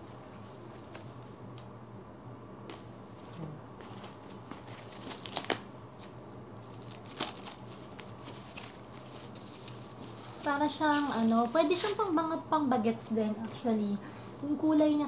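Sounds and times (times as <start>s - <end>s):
packaging wrap crinkling: 2.7s - 12.2s.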